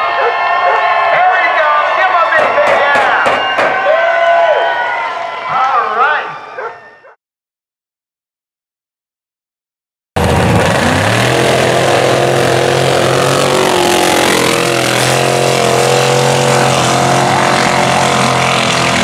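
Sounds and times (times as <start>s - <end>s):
truck engines running hard: 10.2s - 19.0s.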